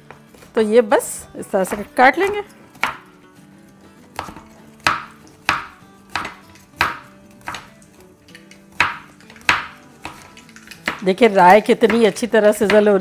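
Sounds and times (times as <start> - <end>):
knife chopping on cutting board: 1.6 - 3.1, 4.1 - 13.0.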